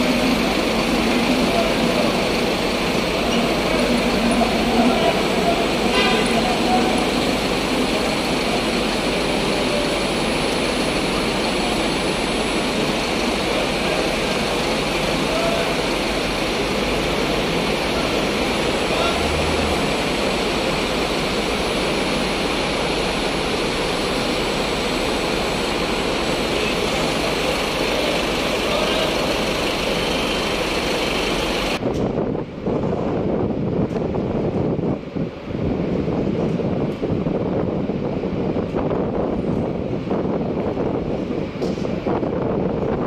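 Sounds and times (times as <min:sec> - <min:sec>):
crowd chatter: 0:00.0 - 0:21.1, 0:25.8 - 0:31.8
bus engines idling: 0:00.0 - 0:43.0.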